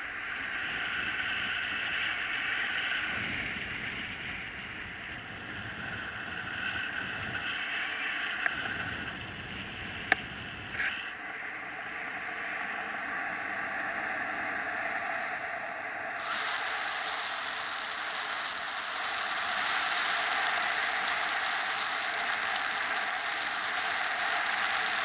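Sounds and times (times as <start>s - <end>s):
airflow rushing over camera: 16.2s - 25.0s.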